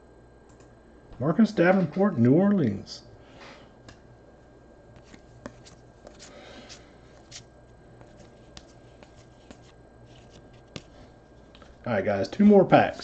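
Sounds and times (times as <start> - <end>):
faint low hum: 0.0 - 13.0
cards clicking and rustling: 5.0 - 7.4, 8.0 - 11.7.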